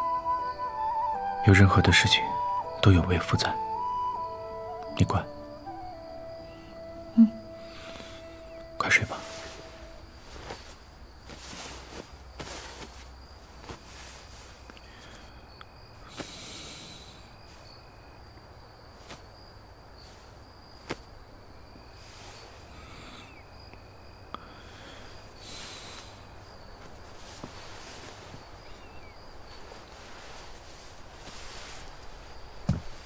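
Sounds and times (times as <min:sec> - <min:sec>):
insect trilling: 0:00.0 - 0:13.4, 0:14.5 - 0:32.7
soft rustles: 0:08.9 - 0:15.4, 0:16.0 - 0:22.9, 0:25.6 - 0:33.0.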